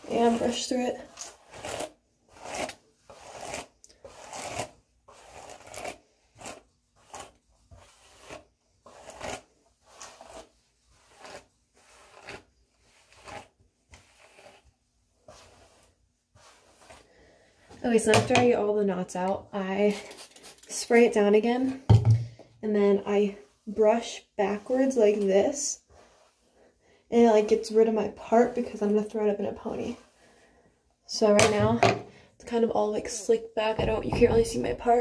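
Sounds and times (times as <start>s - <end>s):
hairbrush rasping through hair: 0.0s - 18.0s, 22.9s - 30.4s.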